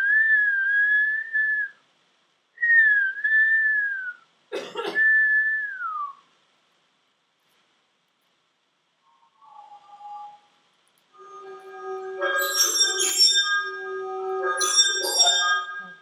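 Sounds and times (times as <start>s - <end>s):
person whistling: 2.6s - 4.2s, 5.0s - 6.2s.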